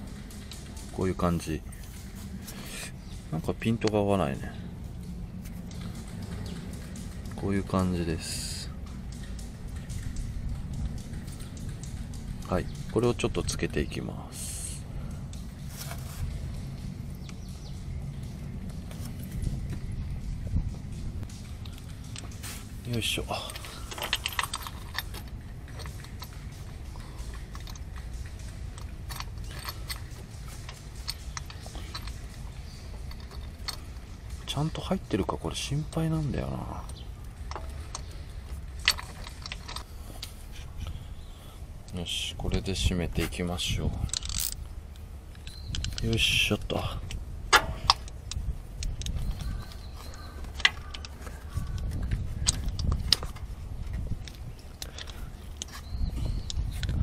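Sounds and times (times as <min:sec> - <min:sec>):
low steady rumble: 0:00.0 - 0:57.0
metallic wrench clicks: 0:21.3 - 0:40.4, 0:45.3 - 0:57.0.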